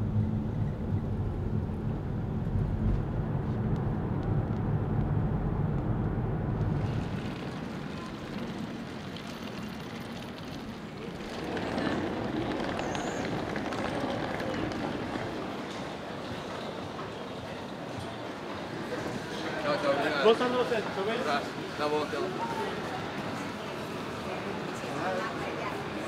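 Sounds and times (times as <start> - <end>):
vehicle road and engine rumble: 0.0 - 17.2
outdoor ambience: 0.0 - 26.0.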